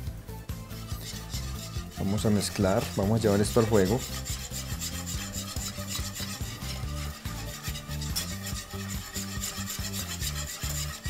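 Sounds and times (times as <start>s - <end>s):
background music: 0.0s - 11.0s
whisk scraping a pot: 0.5s - 11.0s.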